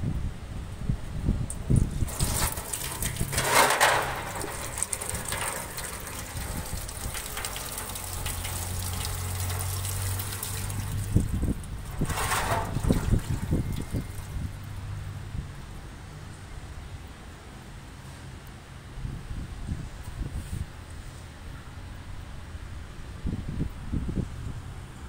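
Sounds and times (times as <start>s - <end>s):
oil splashing into pan: 1.8s - 14.3s.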